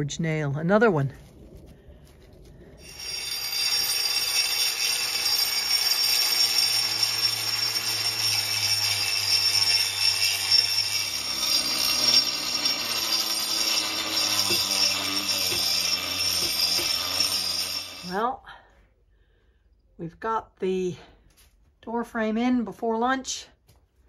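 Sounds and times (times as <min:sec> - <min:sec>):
angle grinder grinding cement: 0:02.8 - 0:18.3.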